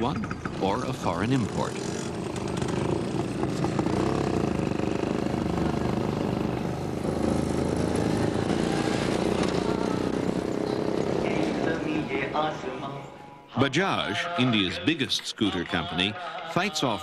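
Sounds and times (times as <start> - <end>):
motorcycle engine running: 0.0 - 12.7.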